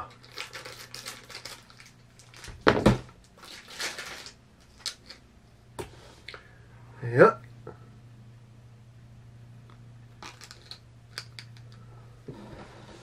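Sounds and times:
plastic packaging crinkling: 0:00.0 - 0:05.2, 0:10.2 - 0:11.7.

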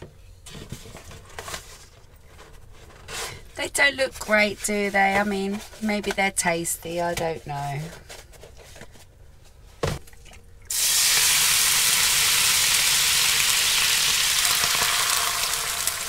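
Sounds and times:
water sizzling in hot pan: 0:10.7 - 0:16.0.

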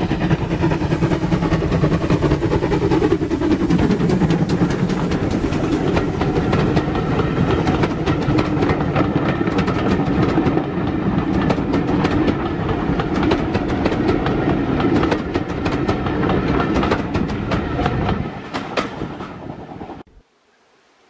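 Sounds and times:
train wheels clicking over rail joints: 0:00.0 - 0:20.0
train rumbling: 0:00.0 - 0:20.2.

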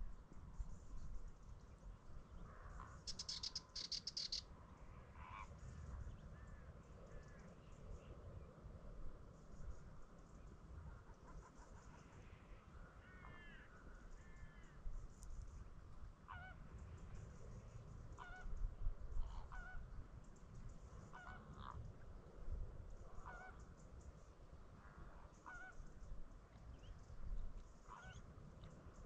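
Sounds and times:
wading birds honking: 0:19.3 - 0:19.8, 0:21.1 - 0:21.8.

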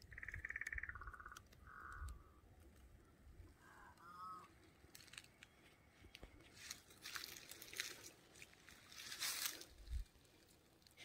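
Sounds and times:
dry grass crunching underfoot: 0:04.6 - 0:11.0.

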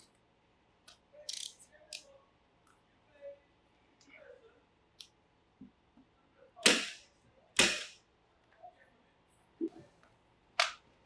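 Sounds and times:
staple gun shots: 0:07.6 - 0:08.0.

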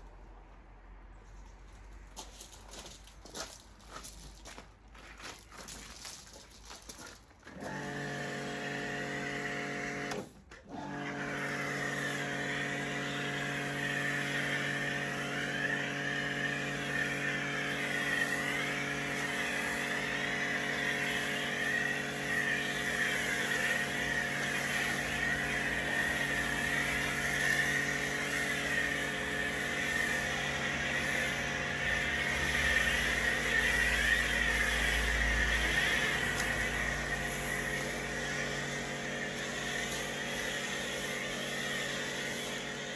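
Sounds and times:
pressure washer motor and pump: 0:07.4 - 0:42.9
spray hissing: 0:11.5 - 0:42.9.

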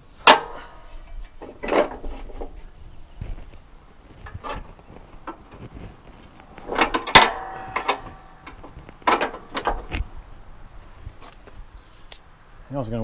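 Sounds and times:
sharp metallic clank: 0:00.2 - 0:02.1, 0:06.6 - 0:09.9
clicks and knocks: 0:00.2 - 0:02.6, 0:04.2 - 0:10.1
metal parts clanking and rattling: 0:00.2 - 0:02.6, 0:04.2 - 0:05.7, 0:06.5 - 0:10.1.

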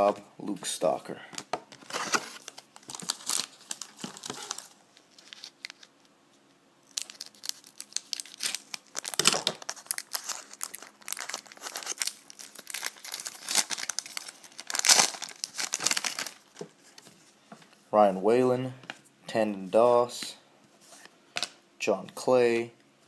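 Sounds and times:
foil pack crinkling and tearing: 0:01.8 - 0:05.9, 0:06.8 - 0:16.6.

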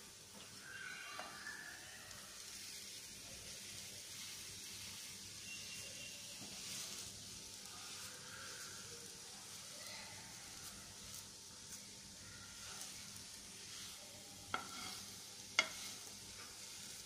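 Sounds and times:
crepe sizzling in a pan: 0:00.0 - 0:17.0
wooden spatula tapping a pan: 0:14.5 - 0:15.0, 0:15.6 - 0:16.6.

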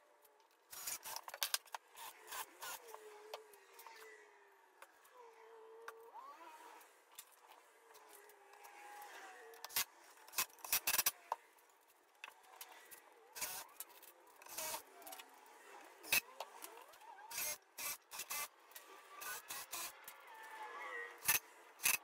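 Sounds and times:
cordless driver driving screws: 0:00.7 - 0:04.1, 0:13.4 - 0:15.2, 0:16.0 - 0:18.5, 0:19.2 - 0:20.2, 0:21.2 - 0:22.0.

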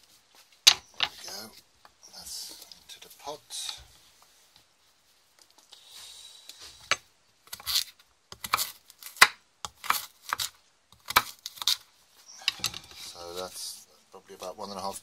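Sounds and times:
knife chopping on wooden board: 0:07.5 - 0:11.8.

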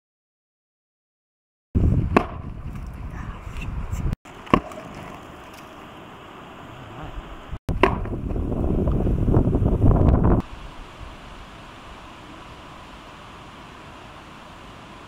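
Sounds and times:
wind rumble on microphone: 0:01.8 - 0:04.2, 0:06.9 - 0:12.6.

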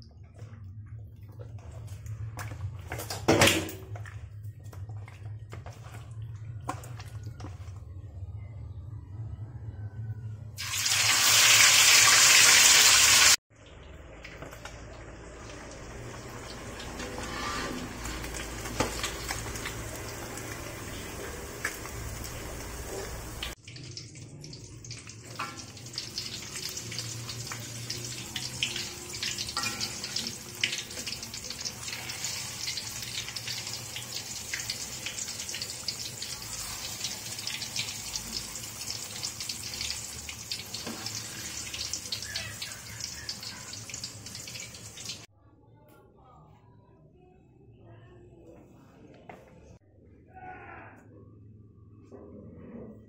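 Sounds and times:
deep-frying sizzle: 0:10.6 - 0:45.3
oil popping and crackling: 0:10.6 - 0:45.3.

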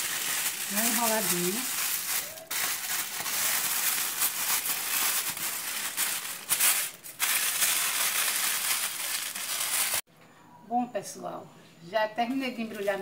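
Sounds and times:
aluminium foil crinkling: 0:00.0 - 0:10.1.

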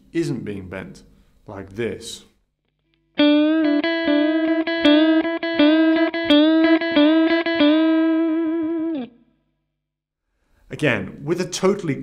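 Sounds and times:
clean electric guitar picking: 0:02.8 - 0:09.4.

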